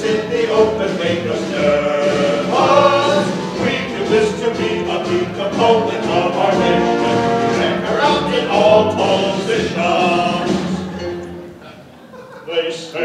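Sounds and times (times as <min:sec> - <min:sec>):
men singing in harmony: 0:00.0 - 0:11.2
musical accompaniment: 0:00.0 - 0:12.1.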